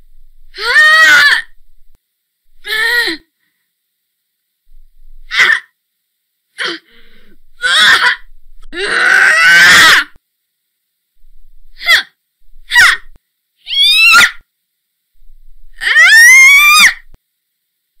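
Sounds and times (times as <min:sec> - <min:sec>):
woman grunting and groaning: 0:02.6 - 0:03.3, 0:06.6 - 0:10.1, 0:11.8 - 0:12.1.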